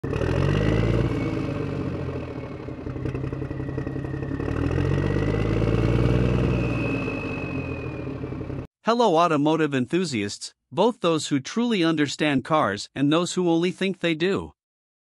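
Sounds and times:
engine running with high whine: 0.0s - 8.7s.

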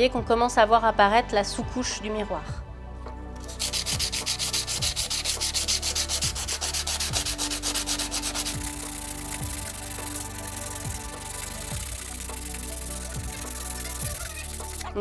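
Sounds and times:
sandpaper rasping on glass: 3.4s - 15.0s.

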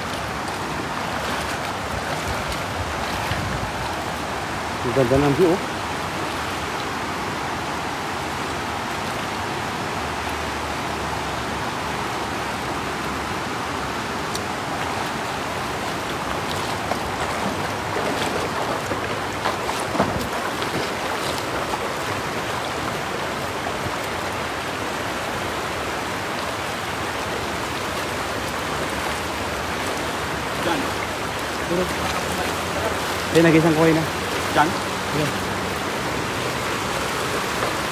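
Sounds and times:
light water splashes: 0.0s - 37.9s
river running over stones: 0.0s - 37.9s.

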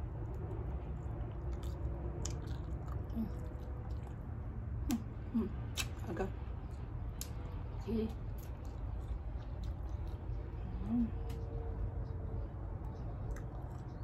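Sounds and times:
person chewing food: 0.0s - 6.0s, 8.2s - 14.0s
steady low hum: 0.0s - 14.0s
wet mouth and lip smacks: 5.7s - 6.1s.

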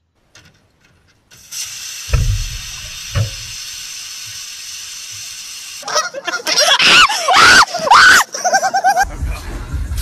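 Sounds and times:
pressurised spray hissing: 1.3s - 5.8s
low thumps: 2.1s - 3.6s.

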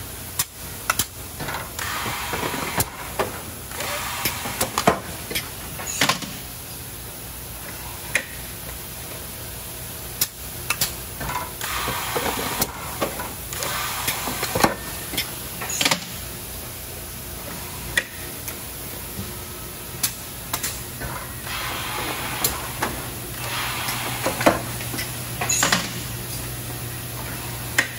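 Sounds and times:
air hissing bursts: 1.8s - 3.0s, 13.6s - 14.6s, 21.4s - 24.8s
industrial machine humming: 11.6s - 27.9s.

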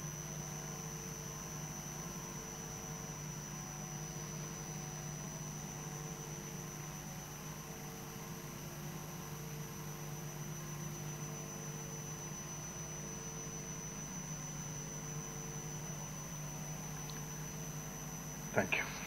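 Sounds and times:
thin high-pitched whine: 9.5s - 19.0s.

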